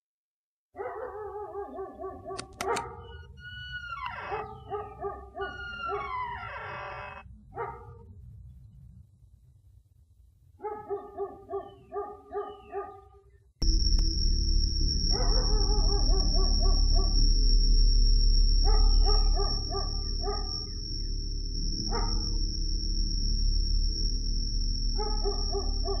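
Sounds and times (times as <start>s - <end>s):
dog whining and howling: 0.8s - 7.2s, 18.7s - 20.8s, 25.0s - 26.0s
dog yelping: 0.8s - 7.9s, 10.6s - 13.1s
sharp click: 2.4s - 3.0s.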